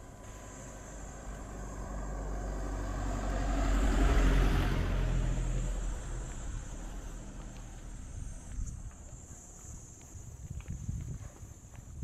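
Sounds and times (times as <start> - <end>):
vehicle passing by: 0.0 - 8.5.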